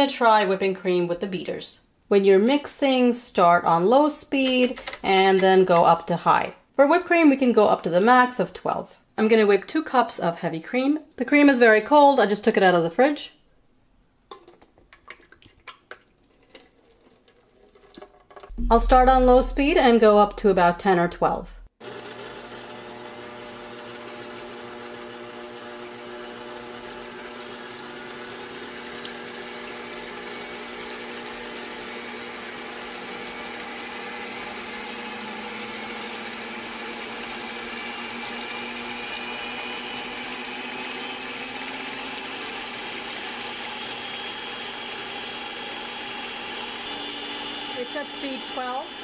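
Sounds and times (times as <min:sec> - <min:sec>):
stand mixer motor whining: 0:21.8 - 0:49.0
beaters whipping cream: 0:22.0 - 0:49.0.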